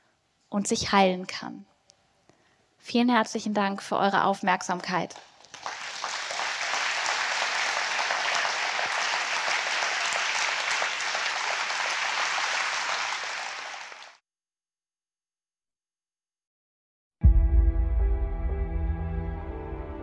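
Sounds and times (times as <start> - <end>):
audience applauding: 5.2 - 14.2.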